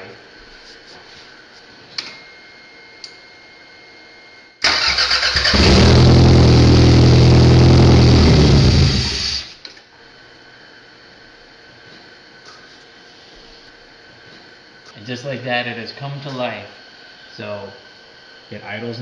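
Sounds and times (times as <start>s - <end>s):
car engine cranking and running: 4.6s - 9.5s.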